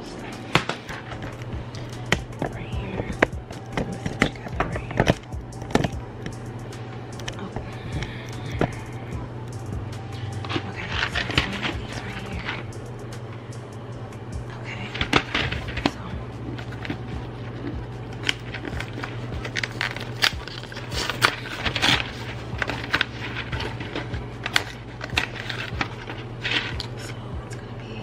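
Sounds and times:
steady low hum: 0:00.0 - 0:28.0
cardboard box tearing: 0:17.8 - 0:27.0.

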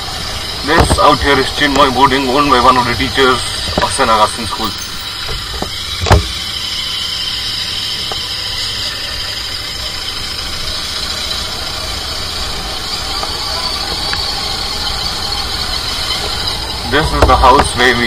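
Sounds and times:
motorcycle engine running: 0:00.0 - 0:18.0
sharp thump: 0:05.3 - 0:06.4.

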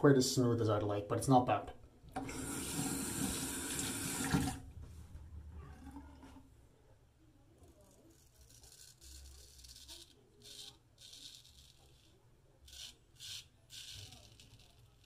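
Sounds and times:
razor scraping stubble: 0:07.6 - 0:15.0.

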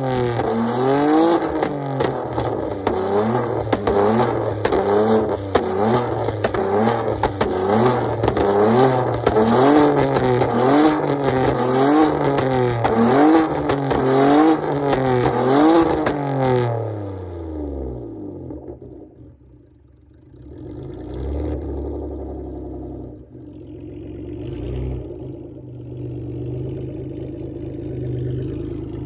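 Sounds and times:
car exhaust revving and crackling: 0:00.0 - 0:29.0
engine idling: 0:18.8 - 0:29.0.

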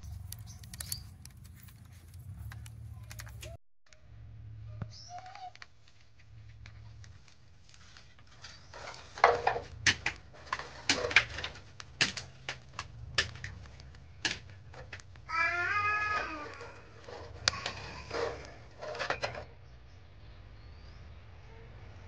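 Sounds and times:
twigs crackling in a fire: 0:00.0 - 0:03.6, 0:05.6 - 0:19.5.

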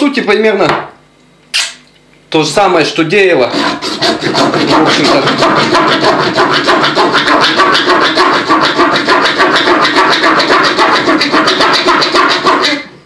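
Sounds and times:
saw blade rasping through coconut shell: 0:03.4 - 0:12.9.

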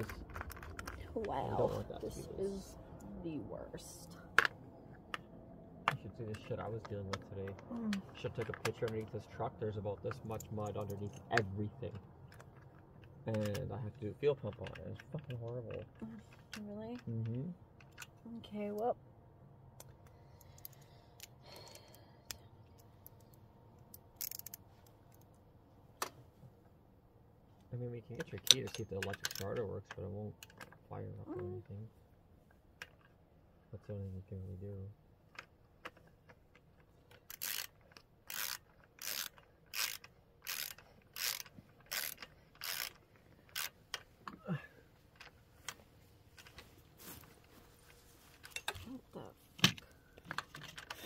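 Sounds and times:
tools and metal parts clicking: 0:22.7 - 0:25.3, 0:28.2 - 0:29.6, 0:35.3 - 0:44.1.

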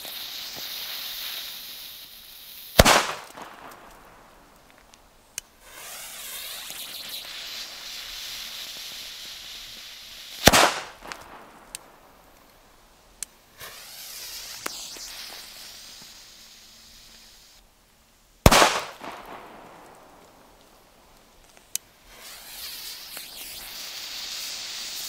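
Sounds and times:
firecracker bang: 0:02.7 - 0:04.1, 0:10.4 - 0:11.8, 0:18.4 - 0:20.6
fuse hissing and sputtering: 0:05.6 - 0:10.5, 0:13.5 - 0:17.6, 0:22.0 - 0:25.0.

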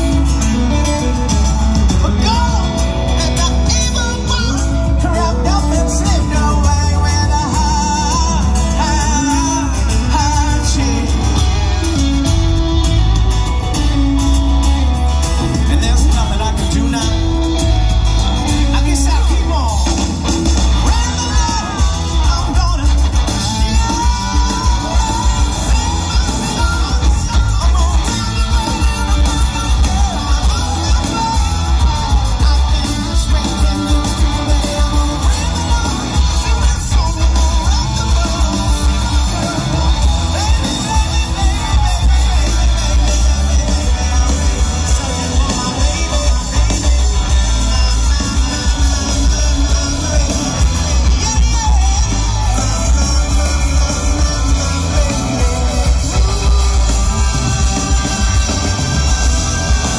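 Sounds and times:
live rock band: 0:00.0 - 0:59.9
person singing lead vocal: 0:00.0 - 0:59.9.

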